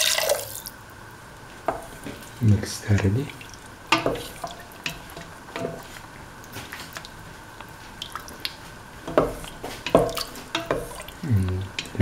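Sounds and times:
wet sloshing and squelching: 0:03.0 - 0:11.2
spoon clicking against pan: 0:09.9 - 0:10.9.

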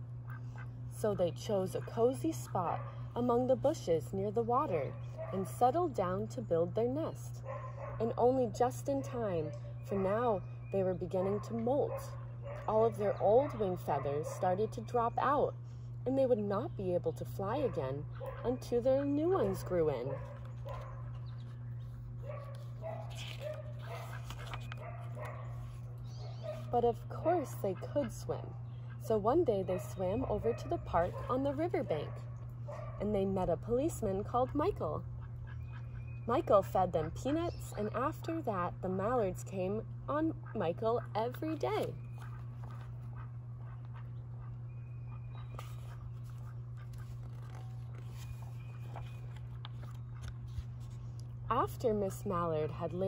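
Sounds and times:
steady low hum: 0:00.0 - 0:53.0
book pages turning: 0:20.4 - 0:26.7, 0:42.1 - 0:43.1, 0:45.5 - 0:51.3
paper rustling: 0:20.7 - 0:25.9, 0:45.5 - 0:51.2.

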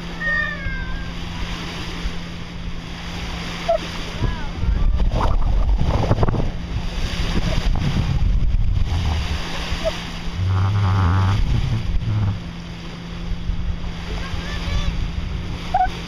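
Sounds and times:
steady low hum: 0:00.0 - 0:16.0
water washing along hull: 0:00.0 - 0:16.0
wind buffeting microphone: 0:04.0 - 0:16.0.

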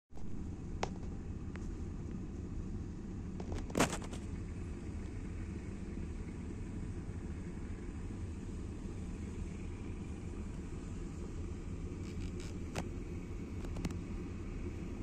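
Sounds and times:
vehicle engine rumble: 0:00.1 - 0:15.0.

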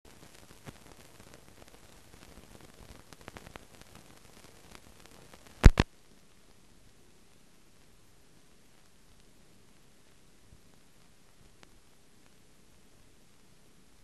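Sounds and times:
light crackles and clicks: 0:00.1 - 0:14.0
soundtrack hiss: 0:00.1 - 0:14.0
sharp loud clicks: 0:05.6 - 0:05.8.

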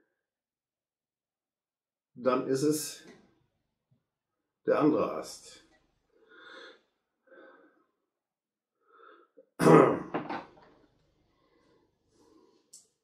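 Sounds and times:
man clearing throat: 0:09.6 - 0:10.4.

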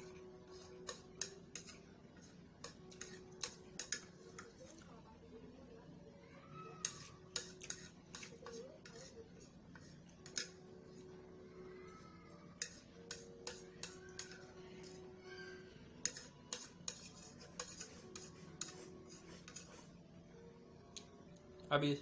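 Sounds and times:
chopsticks scraping a plate: 0:00.0 - 0:04.8, 0:06.8 - 0:10.7, 0:12.6 - 0:15.0, 0:16.0 - 0:20.0.

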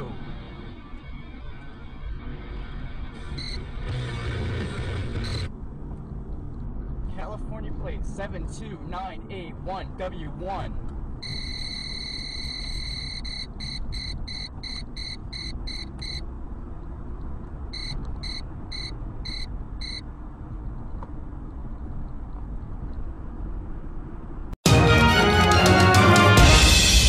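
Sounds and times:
music: 0:00.0 - 0:05.5, 0:24.6 - 0:27.0
road and engine rumble: 0:00.0 - 0:24.6
high electronic beeps: 0:03.3 - 0:03.7, 0:05.2 - 0:05.5, 0:11.2 - 0:16.2, 0:17.8 - 0:20.0.

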